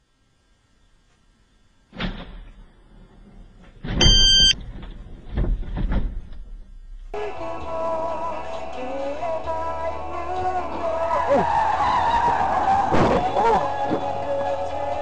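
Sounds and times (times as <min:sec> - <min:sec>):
short high electronic beep: 0:04.0 - 0:04.6
music: 0:07.2 - 0:15.0
car crashing: 0:11.8 - 0:14.0.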